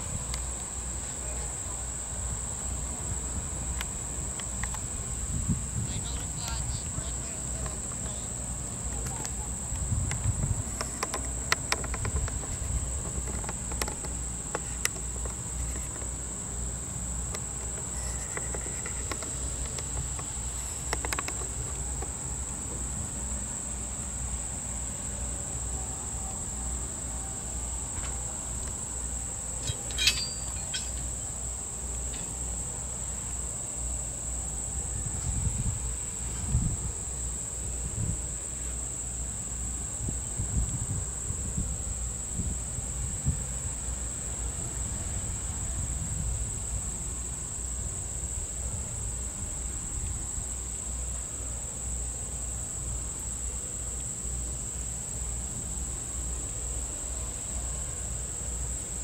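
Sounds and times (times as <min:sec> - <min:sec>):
insects shrilling: 0:03.2 - 0:24.7, 0:27.8 - 0:34.7.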